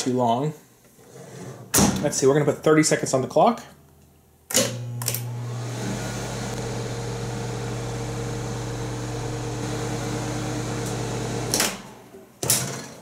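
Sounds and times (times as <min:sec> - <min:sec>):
microwave oven hum: 0:04.6 - 0:12.0
deeper hum: 0:04.8 - 0:11.5.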